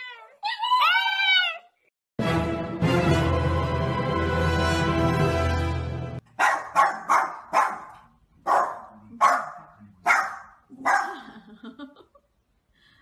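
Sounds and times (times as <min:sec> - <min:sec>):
dog barking: 0:06.4 - 0:11.2.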